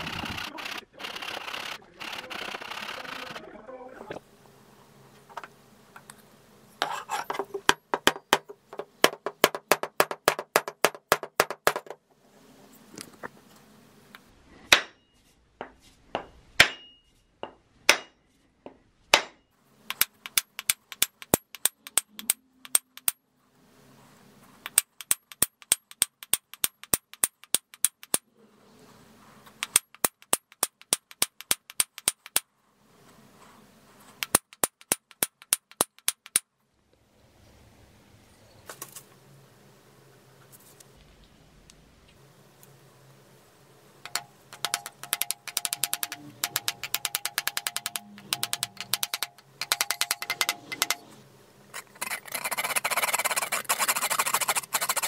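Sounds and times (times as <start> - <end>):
hammer striking steel on anvil: 14.7 - 15.0, 16.1 - 18.2, 19.1 - 19.4.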